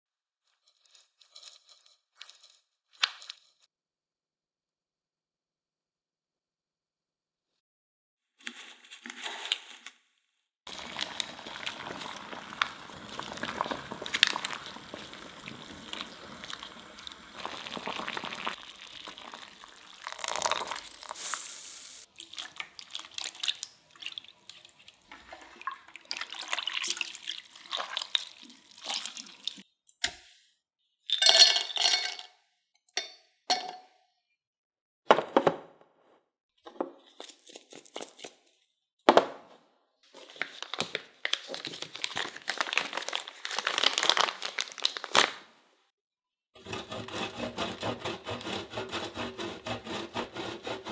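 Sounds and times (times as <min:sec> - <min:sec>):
water running and splashing: 0:10.7 - 0:29.6.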